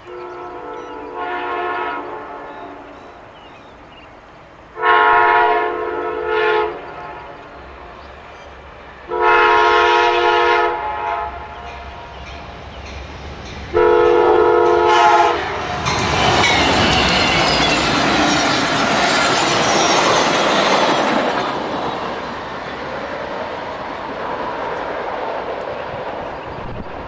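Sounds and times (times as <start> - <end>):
train passing with wheel noise: 0.0 - 27.0
locomotive air horn blasts: 0.1 - 3.0, 4.8 - 7.5, 9.1 - 11.7, 13.7 - 15.8.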